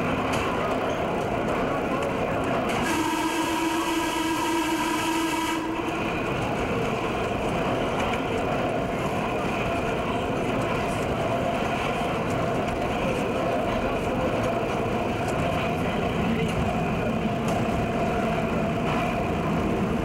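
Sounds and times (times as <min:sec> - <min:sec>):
subway train rumble: 0:00.0 - 0:20.0
train horn tone: 0:02.7 - 0:06.1.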